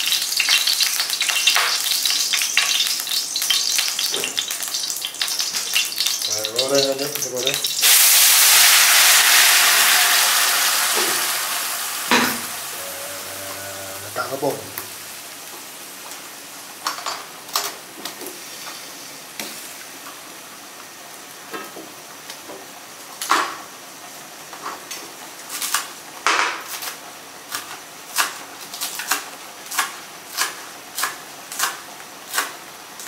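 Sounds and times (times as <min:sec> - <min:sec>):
gravy simmering hiss: 0:00.0 - 0:33.0
utensils knocking on cookware: 0:12.1 - 0:12.5.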